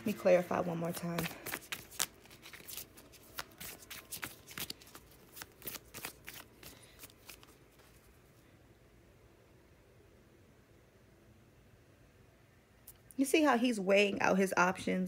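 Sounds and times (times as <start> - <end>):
cards being shuffled: 0.0 - 8.2.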